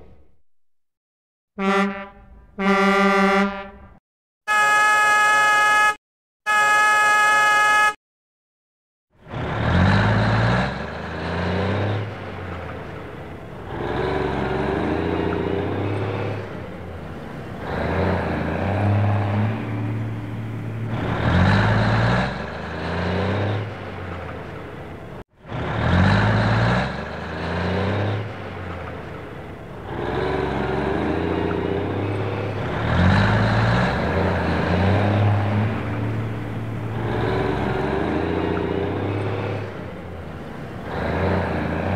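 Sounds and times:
truck engine running: 9.2 - 41.9.

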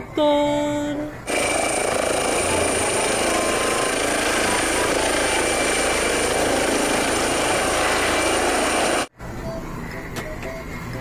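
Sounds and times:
helicopter rotor and engine: 1.3 - 9.1.

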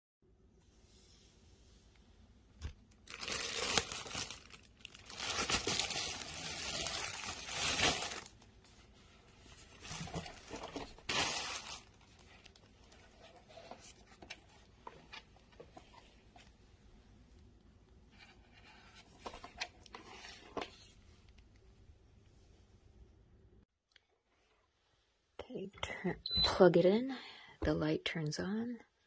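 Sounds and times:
plastic bag crinkling: 2.8 - 8.5, 9.6 - 13.8.

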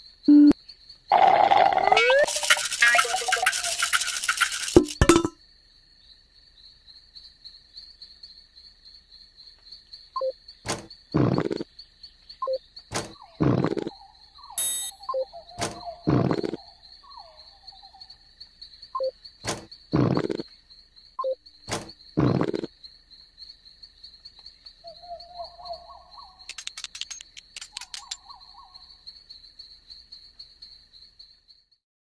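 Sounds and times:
pulsing high-pitched insect trill: 0.0 - 31.8
low animal calls: 1.1 - 4.6, 13.1 - 18.2
quick run of clicks: 2.2 - 5.1, 26.5 - 28.2.

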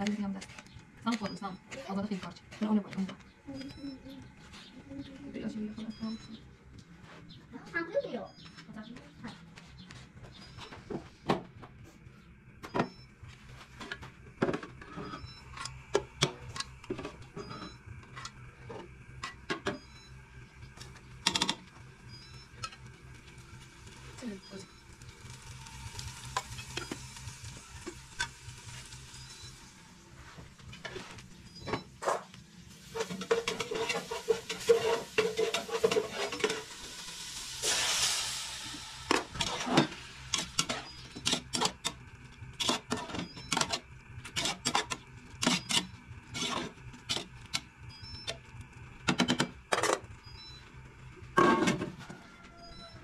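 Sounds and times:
low sizzle: 12.0 - 53.0
skimmer scraping steel pot: 32.9 - 36.9, 37.6 - 48.2.

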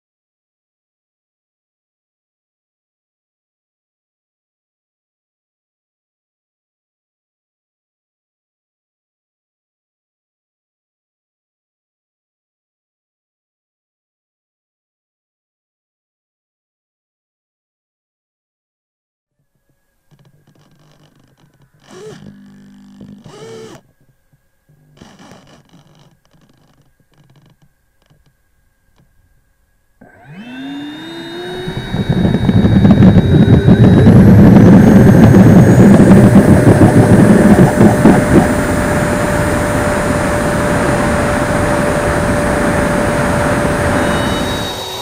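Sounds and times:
electric ducted fan whine: 19.4 - 45.0
wheels rolling over rough runway: 31.8 - 44.4.

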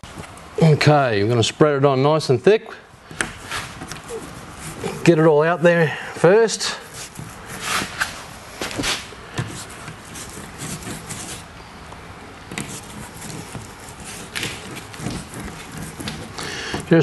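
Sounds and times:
paintbrush swishing and dabbing: 3.4 - 5.2, 6.6 - 11.5, 12.5 - 17.0.

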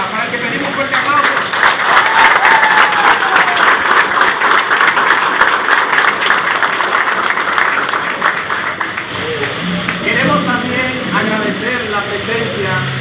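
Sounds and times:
audience clapping: 0.6 - 10.1.

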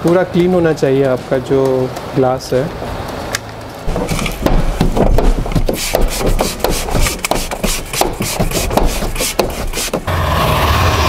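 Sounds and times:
plastic card scraping window glass: 3.8 - 10.1.

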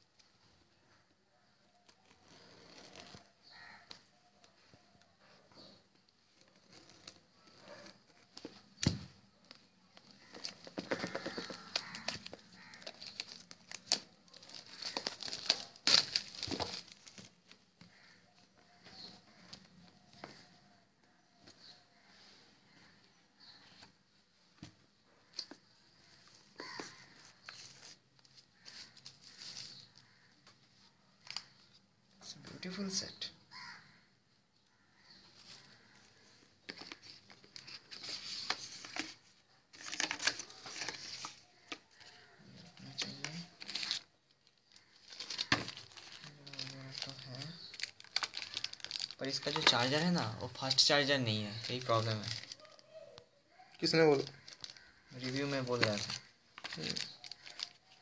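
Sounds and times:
plastic wrap crinkling: 1.7 - 4.6, 6.3 - 20.6, 25.3 - 30.3, 35.4 - 53.0, 53.7 - 58.0.

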